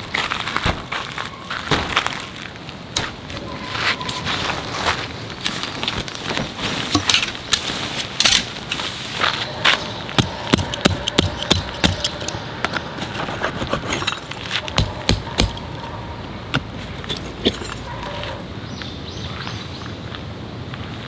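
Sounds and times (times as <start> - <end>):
sharp knocks and clicks: 10.2 - 12.8, 13.9 - 15.8.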